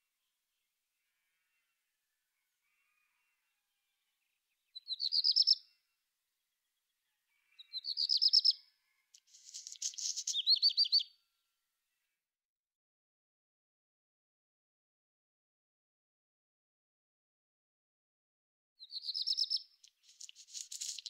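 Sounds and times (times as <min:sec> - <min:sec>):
songbird singing: 0:00.0 - 0:05.8, 0:06.4 - 0:11.2, 0:18.8 - 0:21.0.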